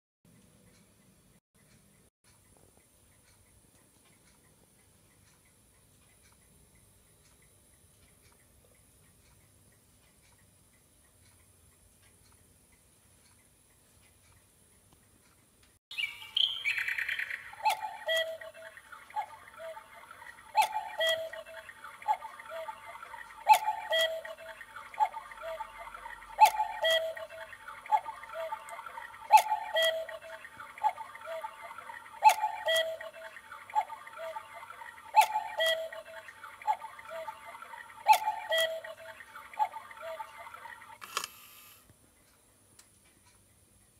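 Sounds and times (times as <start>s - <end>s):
two-note cuckoo calls: 15.9s - 41.0s
steady hiss: 41.0s - 41.9s.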